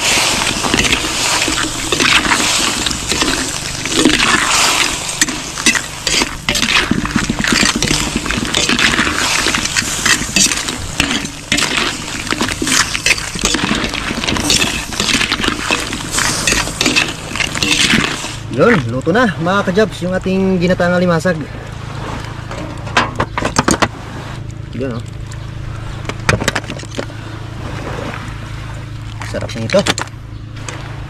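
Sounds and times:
metal spatula scraping wok: 0.0s - 18.5s
sauce bubbling: 0.0s - 18.6s.

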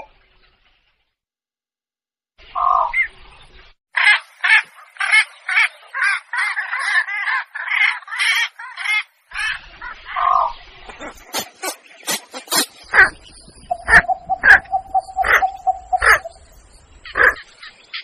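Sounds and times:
heron calls: 11.0s - 16.4s, 17.0s - 17.4s.

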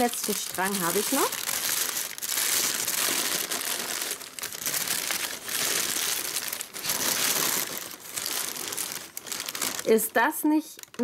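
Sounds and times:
tissue paper crinkling: 0.0s - 11.0s.

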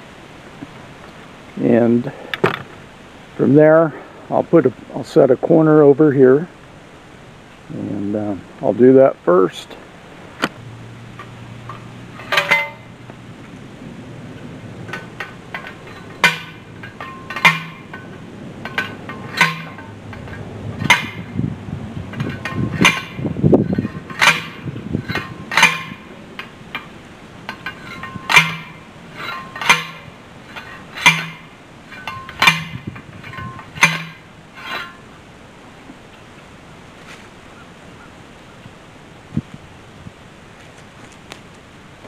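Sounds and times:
post driver clanking on metal: 11.2s - 13.0s, 14.9s - 21.4s, 22.1s - 35.1s.

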